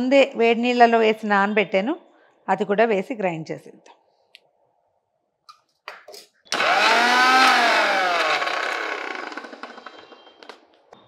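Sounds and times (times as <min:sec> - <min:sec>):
mixer grinder motor: 0:06.5 - 0:10.6.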